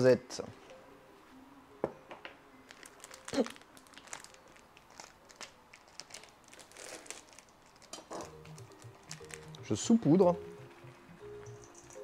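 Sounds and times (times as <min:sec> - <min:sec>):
hazelnuts crinkling and crunching: 0:02.7 - 0:10.0.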